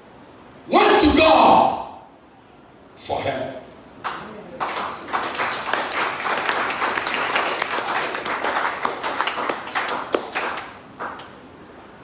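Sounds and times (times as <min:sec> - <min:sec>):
congregation clapping: 0:04.0 - 0:11.4.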